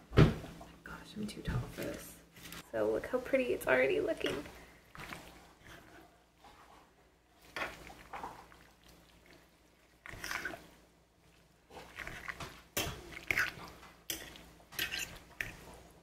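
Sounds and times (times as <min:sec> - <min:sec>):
wet squishing of stirred leaves: 0:01.7 - 0:16.0
spoon scraping and knocking pot: 0:14.1 - 0:15.7.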